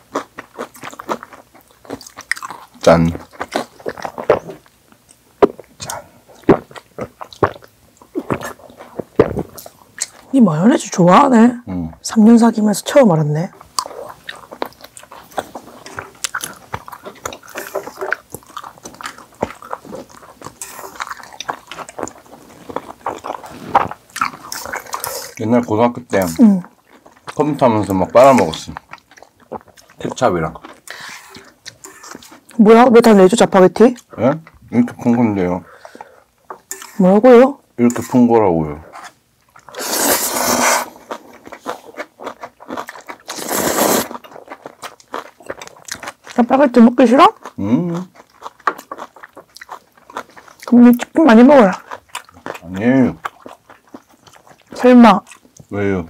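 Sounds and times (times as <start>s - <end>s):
people chewing food: 0.0s - 56.0s
person slurping noodles: 39.7s - 41.9s, 43.3s - 44.2s.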